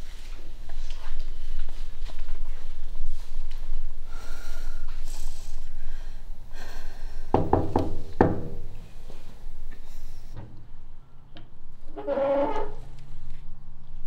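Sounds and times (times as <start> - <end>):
woman breathing hard and gasping: 4.0 - 7.5.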